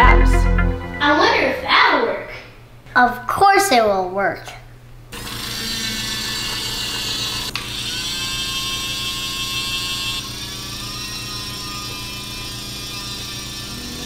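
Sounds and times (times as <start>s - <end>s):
electric winch motor whirring: 5.1s - 14.0s.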